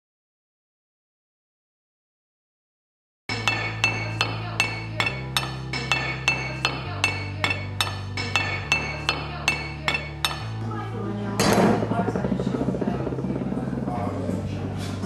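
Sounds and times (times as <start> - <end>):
metal rod striking metal: 3.3 - 10.6
low bass notes: 9.3 - 15.0.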